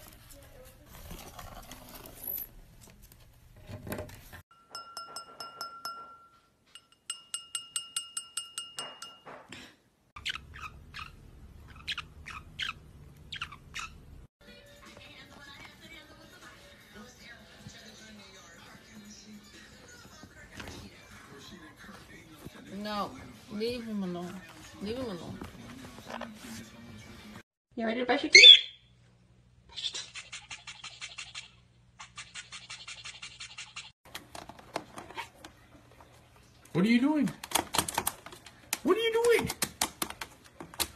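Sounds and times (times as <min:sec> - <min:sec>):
beak tapping wine glass: 0:04.6 - 0:09.3
parrot pecking plastic: 0:37.2 - 0:40.9.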